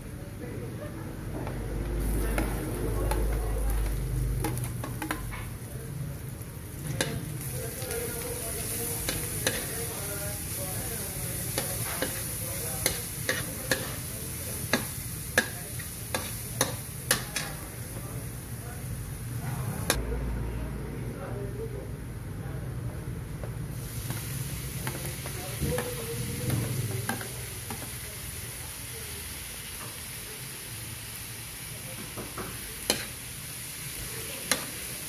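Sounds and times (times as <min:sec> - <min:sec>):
onion and garlic sizzling in oil: 0:00.0 - 0:20.0, 0:23.2 - 0:35.0
metal spoon scraping wok: 0:08.6 - 0:10.6, 0:11.3 - 0:17.6.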